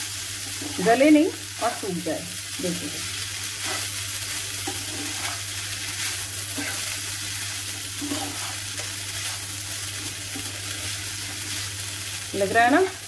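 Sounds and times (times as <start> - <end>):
food frying sizzle: 0.0 - 13.0
spatula scraping a frying pan: 3.4 - 11.5.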